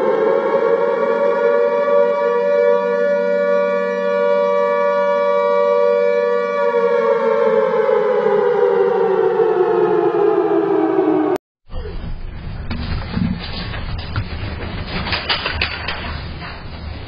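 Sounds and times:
siren wailing: 0:00.0 - 0:12.2.

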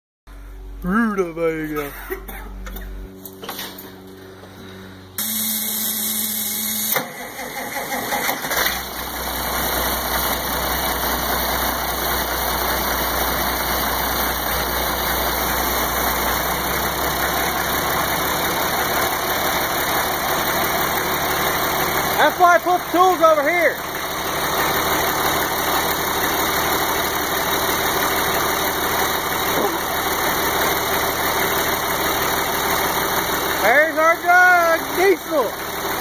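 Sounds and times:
diesel engine idling: 0:00.3 - 0:36.0
starter motor cranking: 0:05.2 - 0:33.8.

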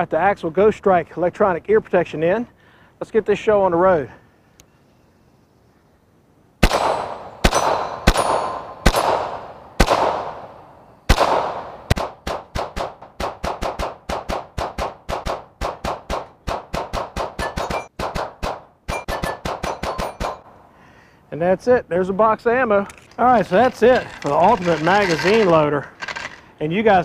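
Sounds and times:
pistol shots echoing: 0:06.6 - 0:20.4
steel targets ringing: 0:06.9 - 0:08.8, 0:17.4 - 0:17.9, 0:18.9 - 0:20.4.

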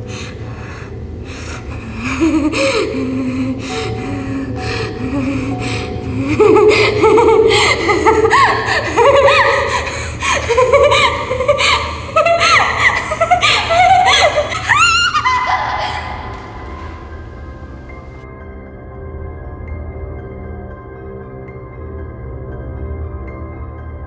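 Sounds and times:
steady low hum: 0:00.0 - 0:18.2
woman laughing loudly: 0:05.1 - 0:16.9.

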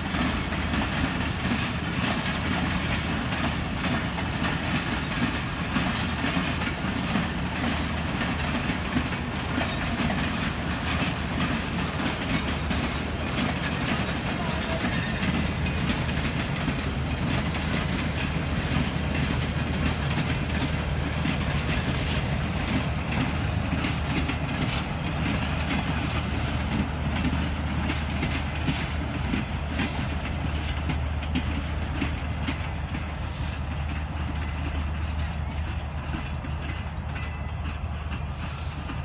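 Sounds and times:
train coaches rumbling past: 0:00.0 - 0:39.0
wheels clicking over rail joints: 0:00.0 - 0:39.0.

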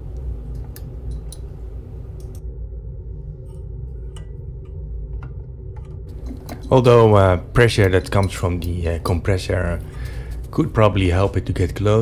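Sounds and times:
steady low hum: 0:00.0 - 0:12.0
light metallic valve clicks: 0:00.5 - 0:02.4.

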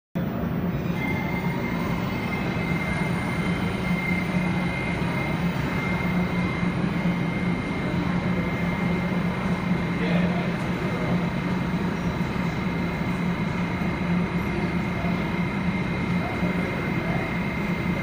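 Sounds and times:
subway car humming: 0:00.2 - 0:18.0
thin high whine: 0:00.2 - 0:18.0.

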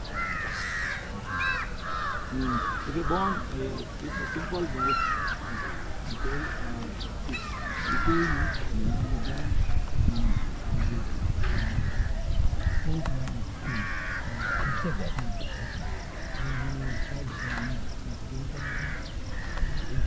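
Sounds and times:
crows cawing: 0:00.0 - 0:09.6, 0:10.2 - 0:20.0
faint voices: 0:00.0 - 0:20.0.

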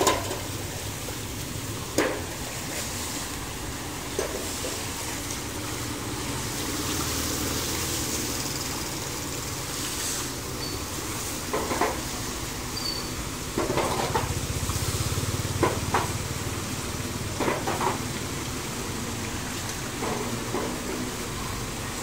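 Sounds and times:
floodwater splashing: 0:00.0 - 0:22.0
motorbike engine hum: 0:12.3 - 0:22.0.

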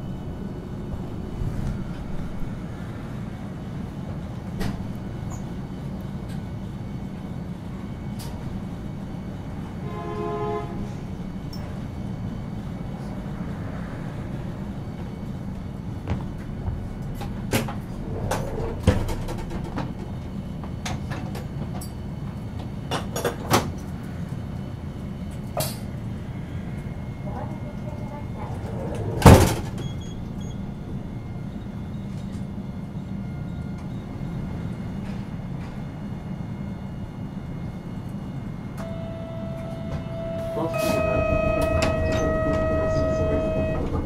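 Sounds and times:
tram low rumble: 0:00.0 - 0:44.0
buzzer-like tone: 0:38.8 - 0:44.0.

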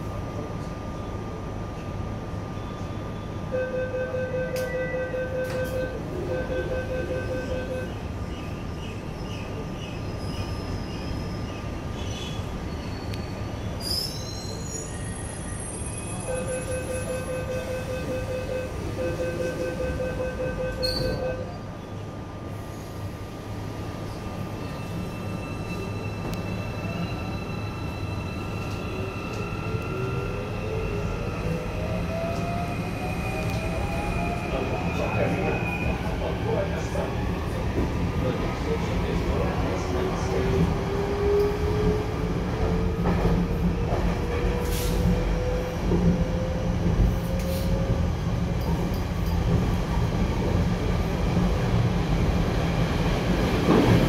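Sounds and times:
train car low rumble: 0:00.0 - 0:54.0
click: 0:33.4 - 0:33.6.

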